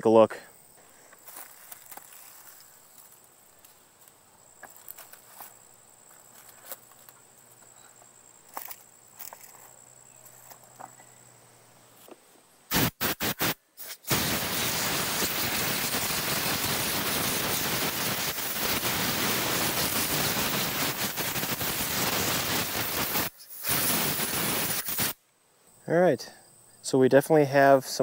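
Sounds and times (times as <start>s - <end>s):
compressed-air blow gun hissing: 12.7s - 25.2s.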